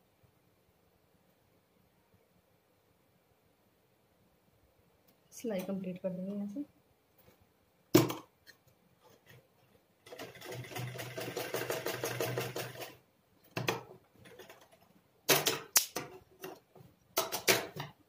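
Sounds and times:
sewing machine stitching: 10.1 - 13.0.

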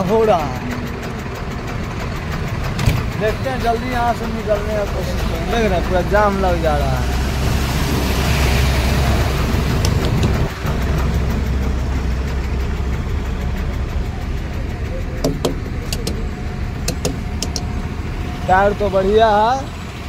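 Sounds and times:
diesel truck engine idling: 0.0 - 20.0
sharp clicks: 9.7 - 10.6, 15.2 - 17.8.

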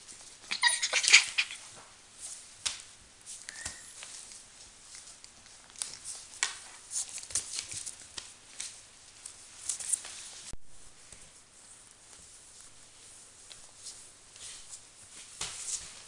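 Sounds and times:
puppy scrambling on paper: 0.2 - 1.8.

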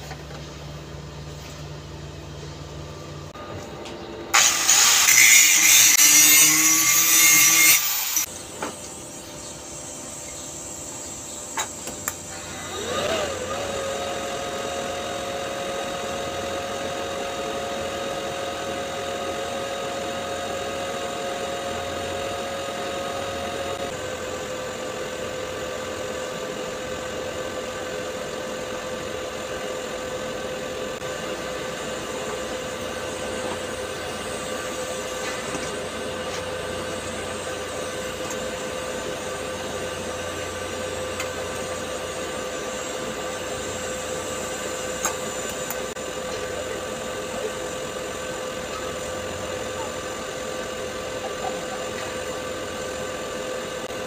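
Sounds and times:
handheld power tool whirring: 4.3 - 8.3, 11.6 - 24.0
welding arc humming and hissing: 4.3 - 54.0.

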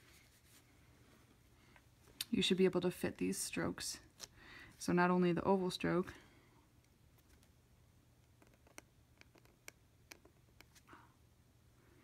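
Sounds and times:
pen nib scratching on paper: 8.3 - 10.9.

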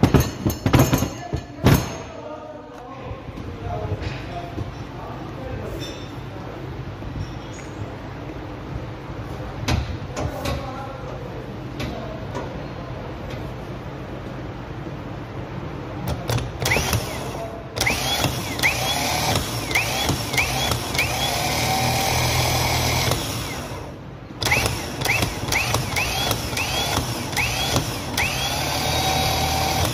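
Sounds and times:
starter motor whining: 16.4 - 29.9.

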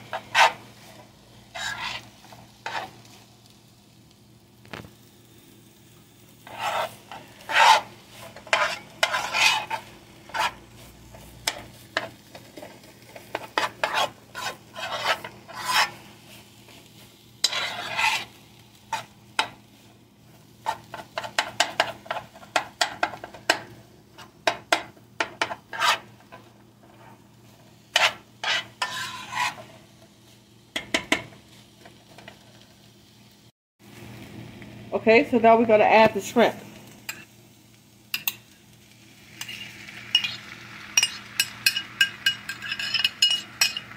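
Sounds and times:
metal spoon scraping skillet: 0.0 - 3.3, 6.4 - 32.4, 37.1 - 37.4, 38.1 - 38.6, 39.3 - 43.9.

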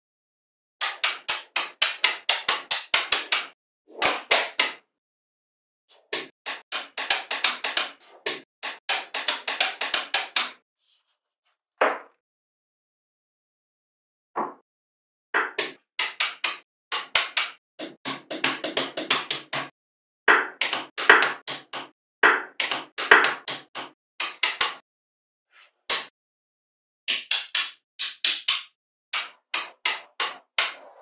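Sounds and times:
magnetic balls clicking together: 6.2 - 10.6.

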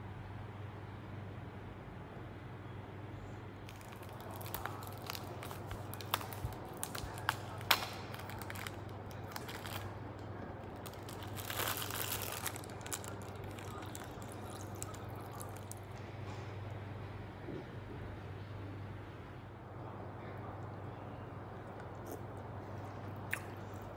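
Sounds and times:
steady low hum: 0.0 - 23.9
plastic bag crinkling: 3.6 - 16.0.

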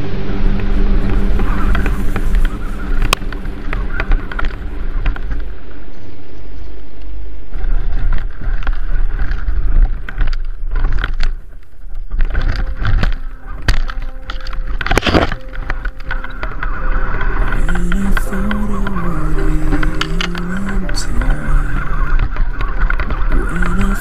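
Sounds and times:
electric motor whine: 0.0 - 5.6.

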